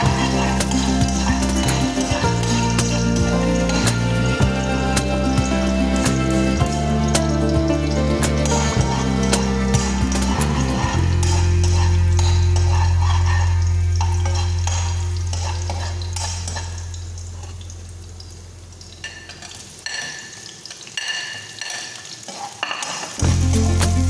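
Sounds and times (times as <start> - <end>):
low hum: 0.0 - 19.0
oil sizzling: 0.0 - 24.0
metal spatula scraping frying pan: 8.4 - 17.6.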